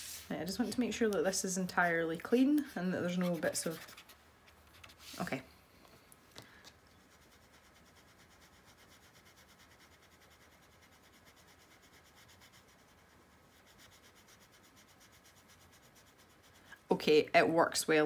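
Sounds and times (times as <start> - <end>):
pen nib rubbing on paper: 0.6 - 5.2, 7.0 - 16.8.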